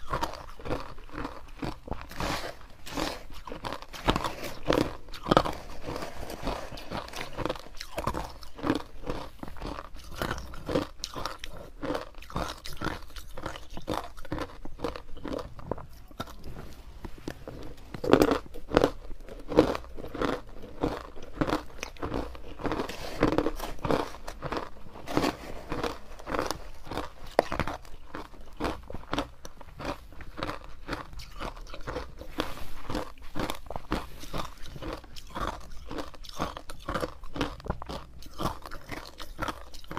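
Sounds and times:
ice chunks being chewed: 0:00.0 - 0:39.9.

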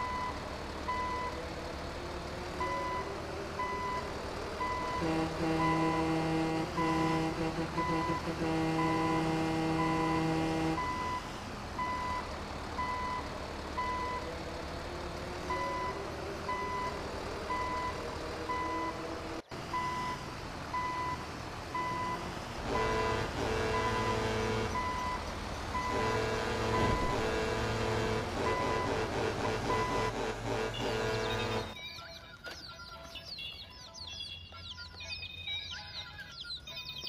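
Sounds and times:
truck reversing alarm beeping: 0:00.0 - 0:01.4, 0:02.6 - 0:06.2, 0:07.8 - 0:14.3, 0:15.5 - 0:19.0, 0:19.7 - 0:32.8
vehicle engine noise: 0:00.0 - 0:31.8
held horn-like tone: 0:05.0 - 0:11.0, 0:22.7 - 0:24.9, 0:25.8 - 0:31.8.

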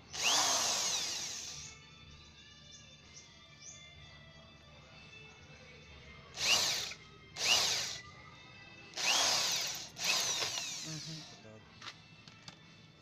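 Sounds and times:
power drill motor whine: 0:00.0 - 0:01.8, 0:06.4 - 0:08.1, 0:09.0 - 0:11.3.

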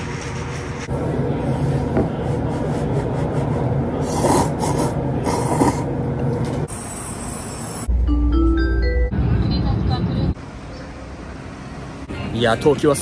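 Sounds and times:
person slurping noodles: 0:04.0 - 0:05.9.

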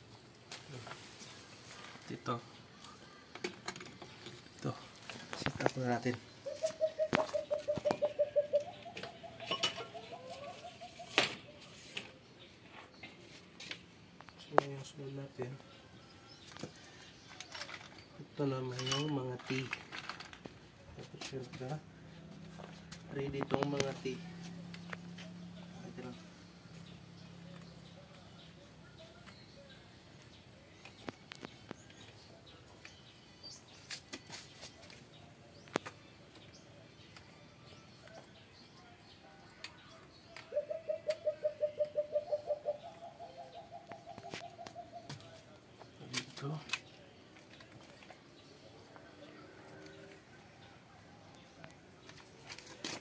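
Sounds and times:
faint birds chirping: 0:00.0 - 0:53.0
bird cooing: 0:06.4 - 0:11.7, 0:40.4 - 0:45.4.

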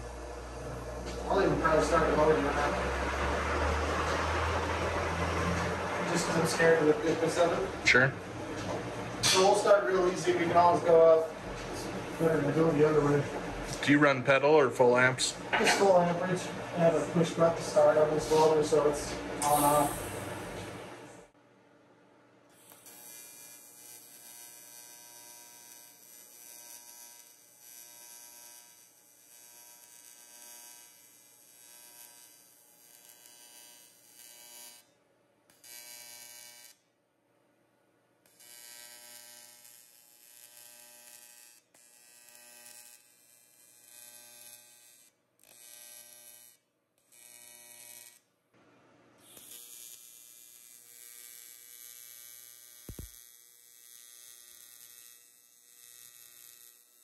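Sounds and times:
welding arc buzzing: 0:00.0 - 0:21.3, 0:22.6 - 0:36.8, 0:38.3 - 0:48.2, 0:49.2 - 0:57.0.

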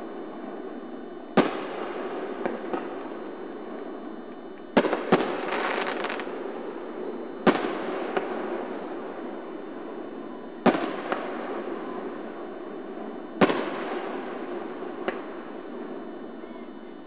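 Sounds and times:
firework bangs: 0:01.4 - 0:03.2, 0:04.7 - 0:09.0, 0:10.6 - 0:12.0, 0:13.4 - 0:15.5
firework crackling: 0:01.4 - 0:16.2
faint firework pops: 0:15.0 - 0:15.4.

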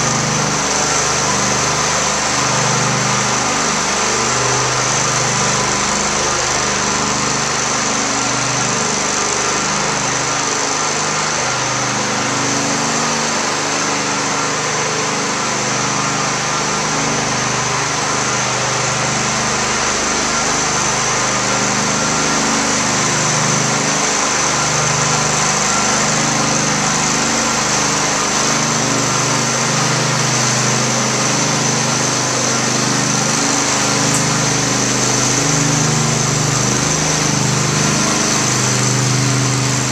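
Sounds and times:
floor burnisher engine humming: 0:15.2 - 0:39.9.

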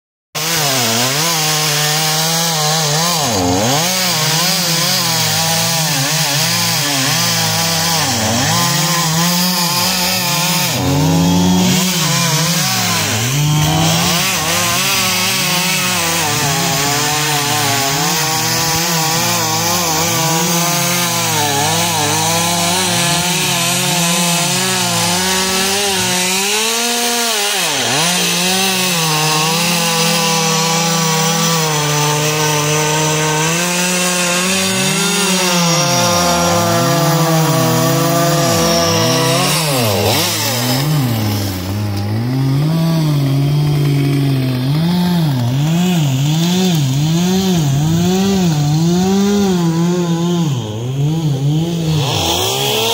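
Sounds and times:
chainsaw cutting wood: 0:00.4 - 0:52.9.

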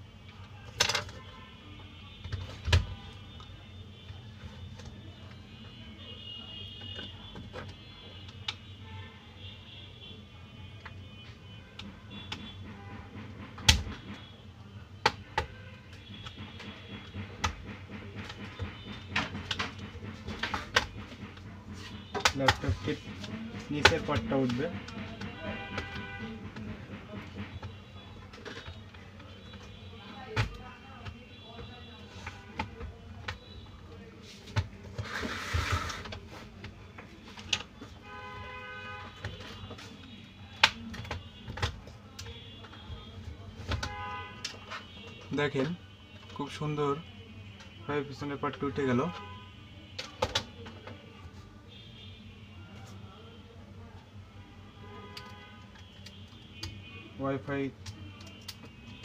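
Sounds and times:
steady pitched horn-like tone: 0:18.2 - 0:30.2.

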